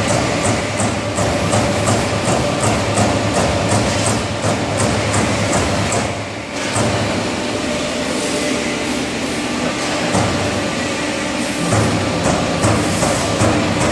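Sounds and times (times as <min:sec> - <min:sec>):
punching machine clatter: 0:00.0 - 0:07.3, 0:11.6 - 0:13.9.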